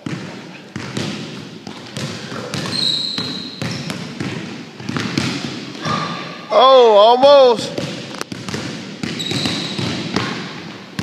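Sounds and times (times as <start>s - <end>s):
basketball bouncing on wooden floor: 0.0s - 5.9s, 7.8s - 11.0s
shoe squeak: 2.2s - 4.0s, 9.1s - 10.0s.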